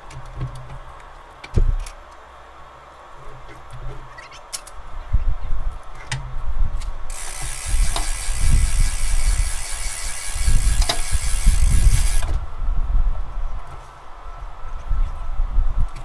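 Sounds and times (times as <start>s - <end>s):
wind buffeting microphone: 6.5s - 13.6s
sharp clicks: 7.1s - 12.4s.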